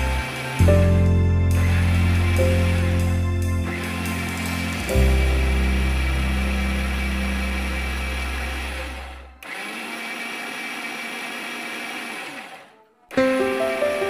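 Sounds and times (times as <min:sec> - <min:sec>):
background music: 0:00.0 - 0:09.4, 0:13.1 - 0:14.0
piano music: 0:00.0 - 0:09.4, 0:13.1 - 0:14.0
electric blender running: 0:01.6 - 0:14.0.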